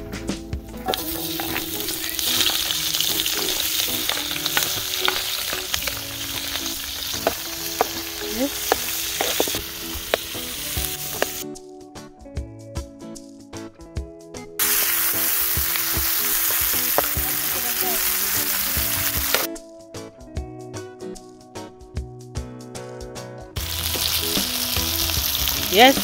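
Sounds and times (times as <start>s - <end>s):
food sizzling in hot oil: 0.8s - 11.4s, 14.6s - 19.5s, 23.6s - 26.0s
utensil clicking while stirring: 0.9s - 11.4s.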